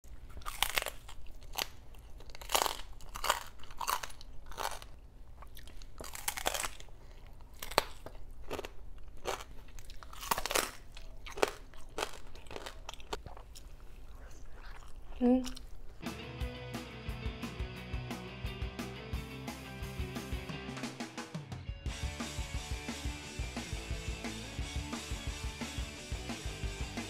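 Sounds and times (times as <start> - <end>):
crispy skin crunching when chewed: 0.2 - 16.0.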